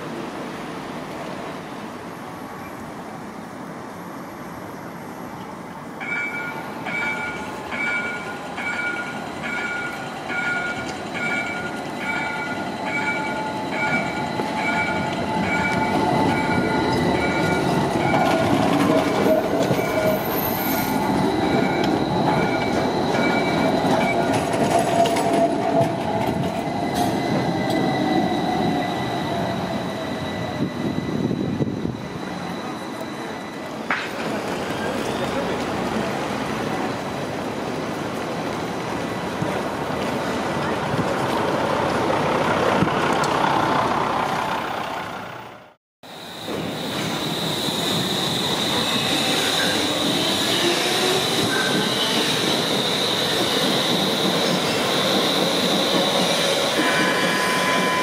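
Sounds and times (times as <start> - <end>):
train rolling past: 0.0 - 58.0
high wheel squeal: 6.3 - 35.6, 46.1 - 58.0.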